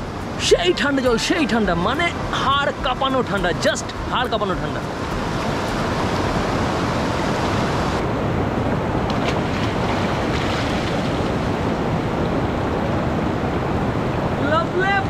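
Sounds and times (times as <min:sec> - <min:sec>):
river rushing over stones: 0:00.0 - 0:14.9.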